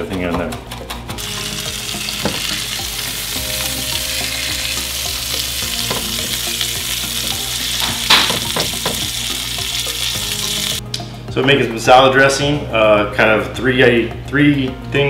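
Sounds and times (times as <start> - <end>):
meat sizzling in a skillet: 1.2 - 10.8.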